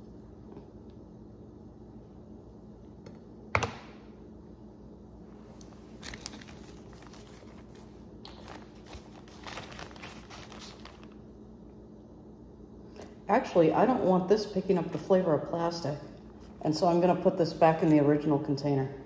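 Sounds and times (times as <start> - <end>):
plastic bag crinkling: 5.9 - 11.3.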